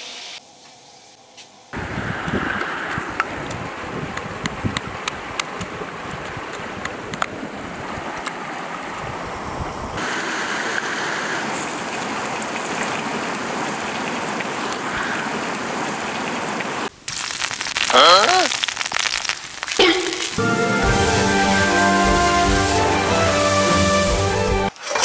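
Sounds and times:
food sizzling in a wok: 0:00.0 - 0:01.1, 0:17.0 - 0:24.6
steady rushing hiss: 0:00.0 - 0:06.2, 0:09.9 - 0:17.8, 0:18.4 - 0:24.7.

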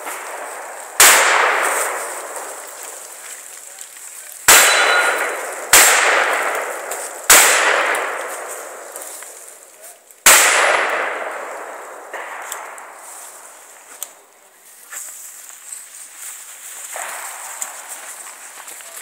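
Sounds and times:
shotgun shots ringing steel targets: 0:00.0 - 0:03.2, 0:04.4 - 0:13.6, 0:16.9 - 0:18.1.

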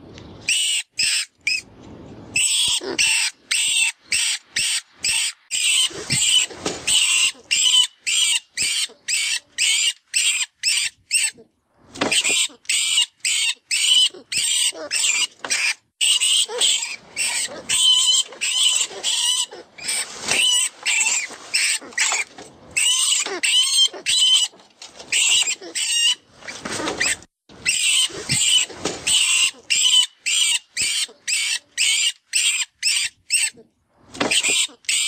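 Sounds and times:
rodent distress squeaks: 0:02.4 - 0:11.4, 0:12.2 - 0:24.5, 0:27.0 - 0:33.6.

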